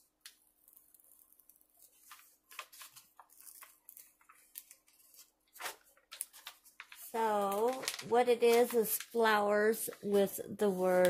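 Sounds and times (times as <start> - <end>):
cover sheet peeling crackles: 0.2 - 11.0.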